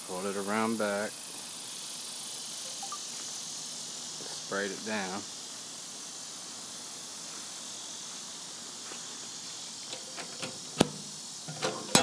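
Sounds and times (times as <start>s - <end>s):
steady hiss: 0.0s - 12.0s
metal latch clank: 9.9s - 12.0s.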